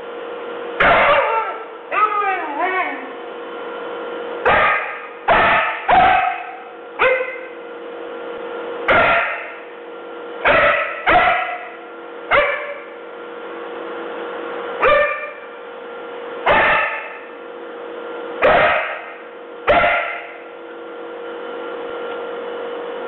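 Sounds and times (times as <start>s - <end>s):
steady hum: 0.0s - 23.0s
dog barking: 0.8s - 3.1s, 4.4s - 7.6s, 8.9s - 9.6s, 10.4s - 13.0s, 14.8s - 15.4s, 16.4s - 17.3s, 18.4s - 20.4s.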